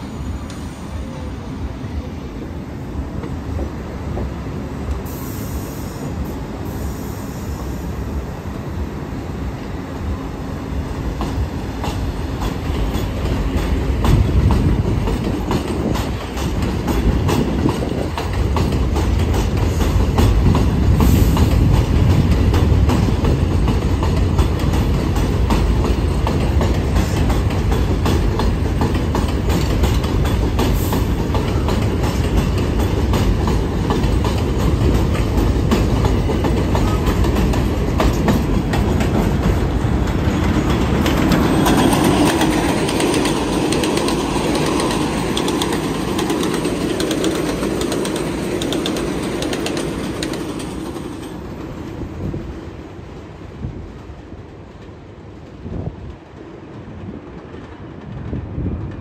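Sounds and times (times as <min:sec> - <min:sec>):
train rumbling on elevated track: 0:00.0 - 0:59.0
train wheels clacking over rail joints: 0:11.1 - 0:52.0.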